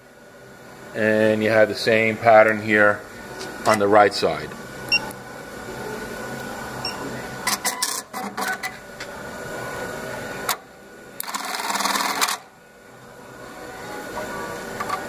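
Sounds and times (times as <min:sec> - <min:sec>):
sharp mechanical clicks: 0:11.2 - 0:12.4
rapid machine stitching: 0:11.2 - 0:12.5.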